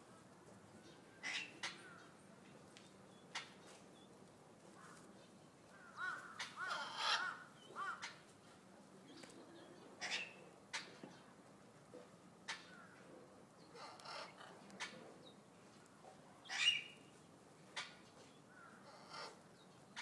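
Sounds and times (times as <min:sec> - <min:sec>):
guineafowl calling: 0:05.9 - 0:08.2.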